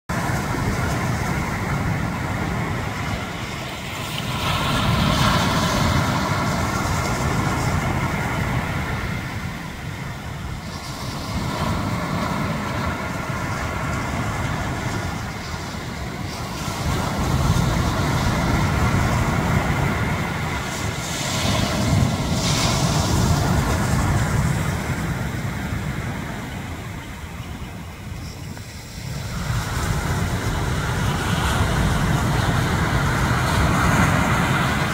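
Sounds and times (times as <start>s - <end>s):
ocean surf breaking on beach: 0.1s - 34.9s.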